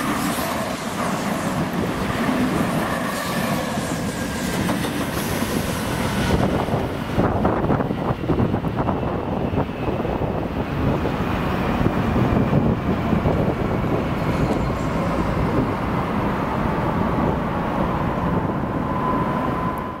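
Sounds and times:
train wheels rumbling on rail: 0.0 - 20.0.

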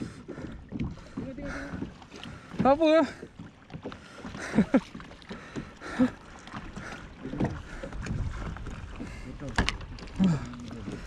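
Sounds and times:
water lapping against kayak: 0.0 - 11.0
wind rumbling on microphone: 7.1 - 11.0
person sighing and murmuring: 10.2 - 10.6.

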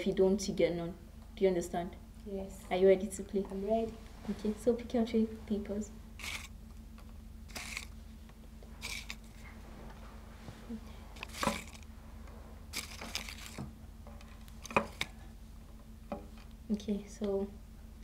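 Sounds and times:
steady low hum: 0.0 - 18.0
paper slips rustling: 7.5 - 7.9, 8.8 - 9.4, 11.2 - 11.8, 12.7 - 13.6.

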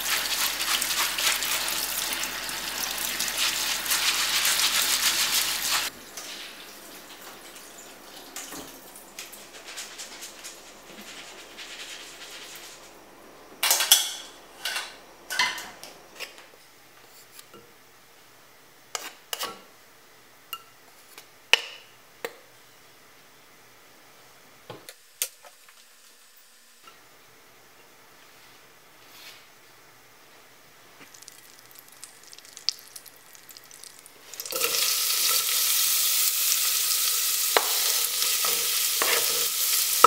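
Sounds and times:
tap water running: 0.0 - 9.6, 31.1 - 40.0
metal kitchenware clinking: 13.6 - 15.7
faint dripping: 31.1 - 34.5.

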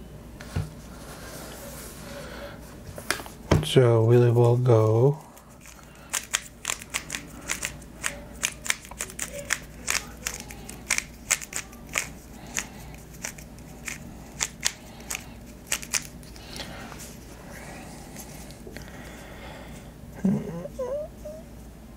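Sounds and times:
speed cube plastic clicks: 6.1 - 16.1.

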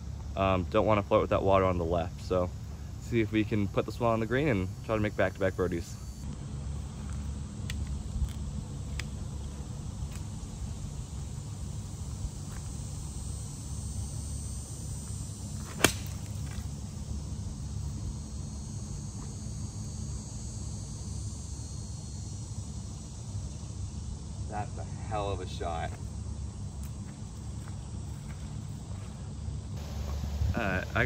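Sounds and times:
steady low rumble: 0.0 - 31.0
golf club striking ball: 15.6 - 16.6.

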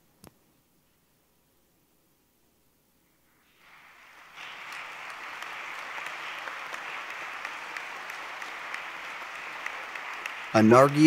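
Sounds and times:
crowd applause: 3.5 - 11.0.

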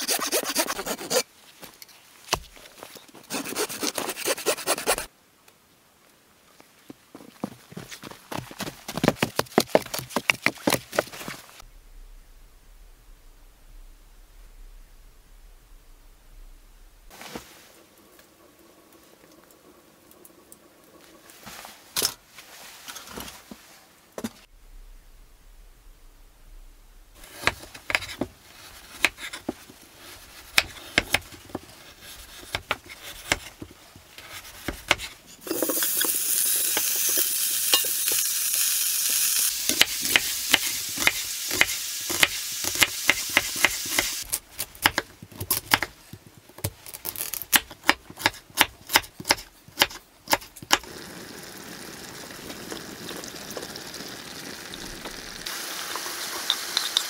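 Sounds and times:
meat sizzling in pan: 35.5 - 44.3, 50.8 - 57.0.

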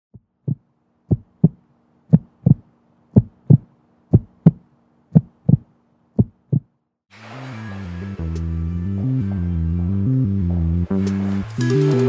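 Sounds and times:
heartbeat double thumps: 0.2 - 6.8.

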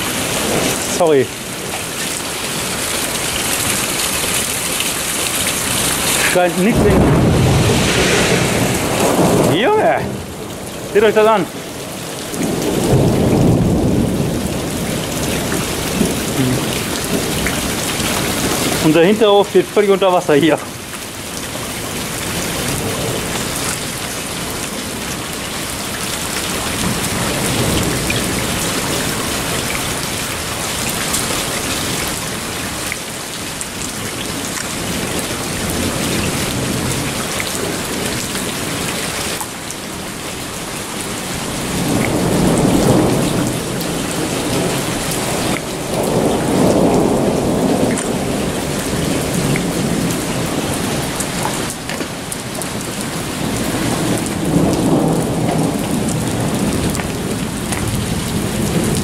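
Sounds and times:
heavy rain pouring: 0.0 - 59.0
thunder rumbling: 5.8 - 19.0, 41.4 - 59.0.

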